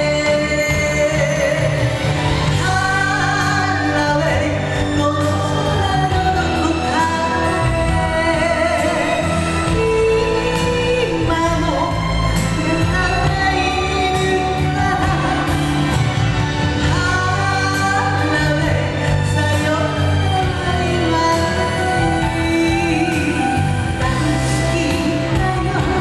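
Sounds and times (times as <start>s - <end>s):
instrumental backing music: 0.0s - 26.0s
woman singing into a microphone: 0.0s - 26.0s.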